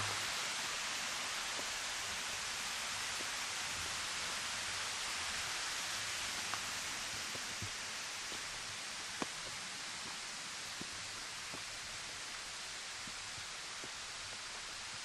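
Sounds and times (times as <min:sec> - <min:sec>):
water rushing: 0:00.0 - 0:03.0
footsteps on stone path: 0:06.4 - 0:08.6, 0:13.0 - 0:14.7.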